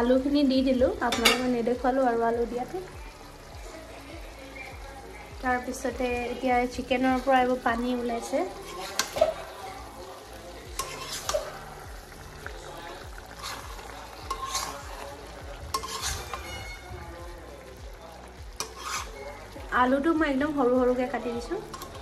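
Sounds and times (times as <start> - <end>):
curry sizzling: 0.0 - 22.0
metal spatula scraping pan: 8.5 - 9.6, 10.7 - 11.7, 13.3 - 15.1, 15.7 - 17.0, 18.6 - 19.4, 21.6 - 22.0.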